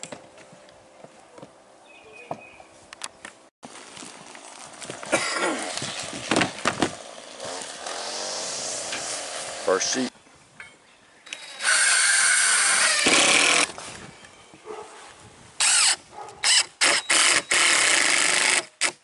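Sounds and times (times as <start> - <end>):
cordless drill driving screws: 11.3 - 13.7, 15.6 - 19.0.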